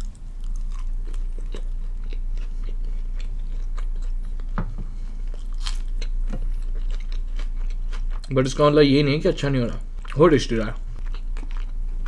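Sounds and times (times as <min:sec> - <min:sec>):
chewing and biting food: 0:00.0 - 0:04.6, 0:05.2 - 0:08.3, 0:11.0 - 0:12.0
low hum: 0:00.0 - 0:10.2.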